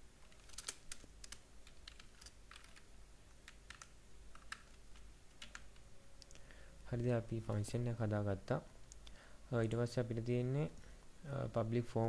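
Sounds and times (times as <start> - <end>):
faint keyboard typing: 0.2 - 6.5.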